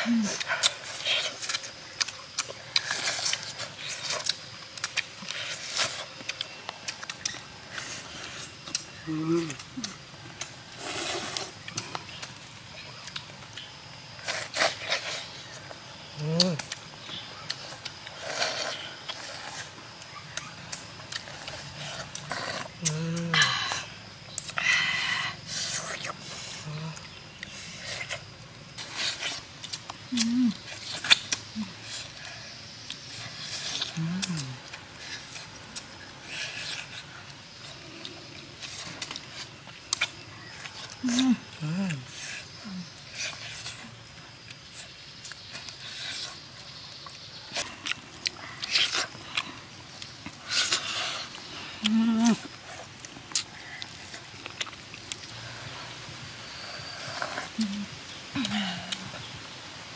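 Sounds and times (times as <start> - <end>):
lip-smacking and chewing: 0.2 - 23.3, 24.3 - 24.7, 25.4 - 55.4
person humming: 9.0 - 10.0, 22.8 - 23.5, 30.1 - 30.6, 51.8 - 52.4, 57.6 - 59.1
small mouth clicks: 22.1 - 23.4, 24.3 - 24.6.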